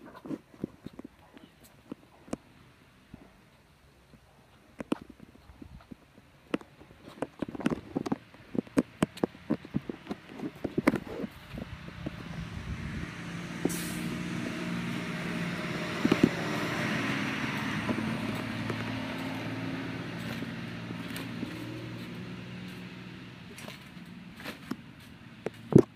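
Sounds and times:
vehicle passing by: 10.9s - 25.7s.

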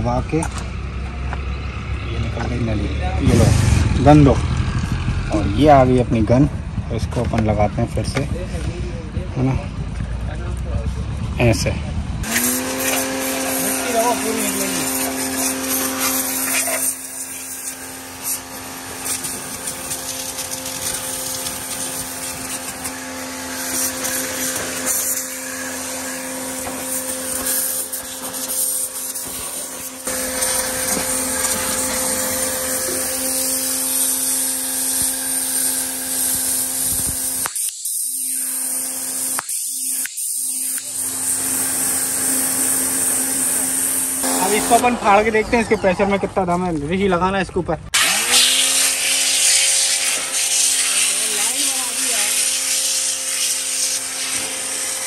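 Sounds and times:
pressure washer motor hum: 12.0s - 47.2s, 47.9s - 55.0s
water jet hissing: 12.2s - 46.1s, 48.0s - 55.0s.

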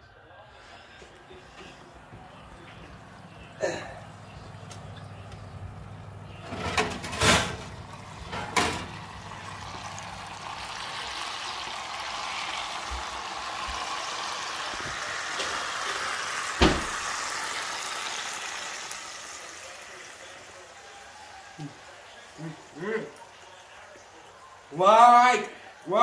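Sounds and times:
metal pan and oven clunks: 6.4s - 9.0s, 16.6s - 17.0s
hot fat sizzling in a roasting pan: 6.4s - 26.0s.

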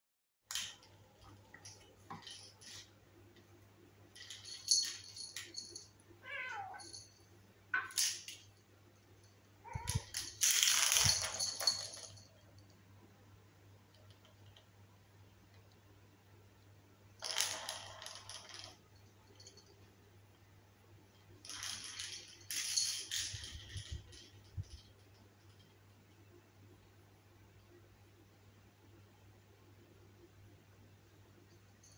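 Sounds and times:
plastic stick rattling on tile: 0.5s - 3.0s, 7.7s - 8.5s, 9.7s - 12.3s, 21.5s - 25.8s.

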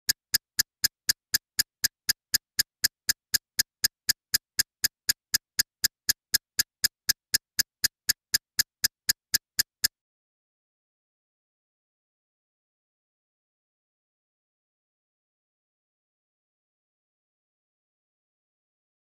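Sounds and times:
sharp electronic ticks: 0.0s - 10.0s.

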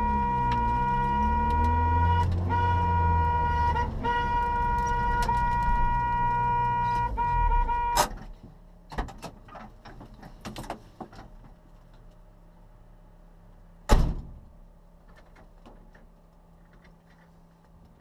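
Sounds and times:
car door slamming: 13.9s - 14.4s.

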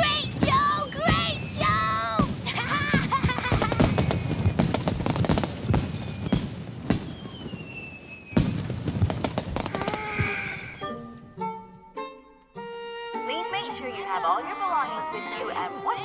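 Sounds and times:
fireworks bangs and crackles: 0.0s - 10.8s
rocket whistle: 0.4s - 2.1s, 5.8s - 6.4s, 7.0s - 8.6s, 9.6s - 11.0s
light music: 10.2s - 16.0s.

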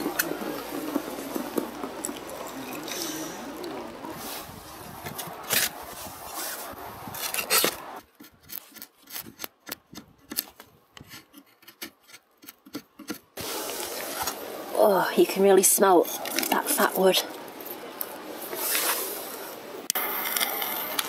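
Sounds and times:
knife scraping wood: 7.2s - 14.4s.

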